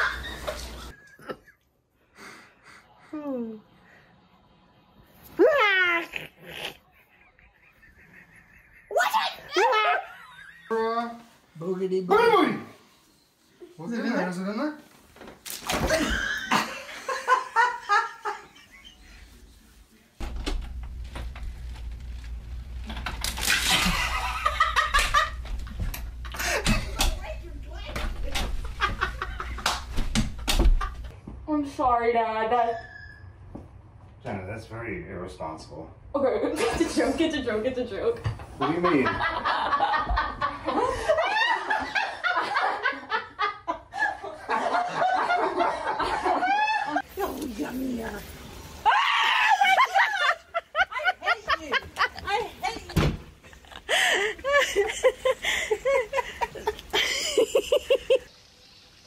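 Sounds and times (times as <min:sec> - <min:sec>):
people laughing: 0:00.0 - 0:01.7, 0:06.1 - 0:11.1, 0:15.8 - 0:19.5, 0:23.7 - 0:27.1, 0:28.7 - 0:30.0, 0:38.6 - 0:47.0, 0:49.2 - 0:58.3
high squeal of laughter: 0:48.8 - 0:50.4.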